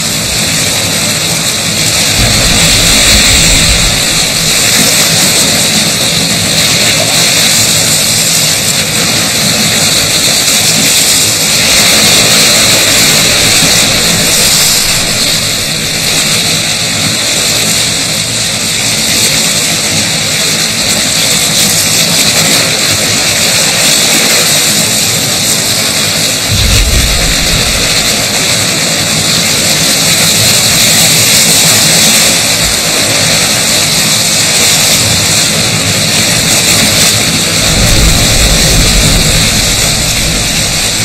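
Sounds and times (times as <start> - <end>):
seawater churning and splashing: 0.0 - 41.0.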